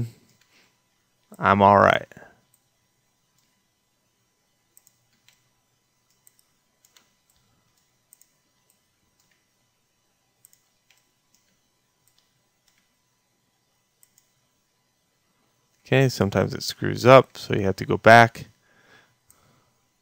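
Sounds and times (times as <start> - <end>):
computer mouse clicks: 4.7 - 9.5, 10.4 - 13.0, 14.0 - 14.4.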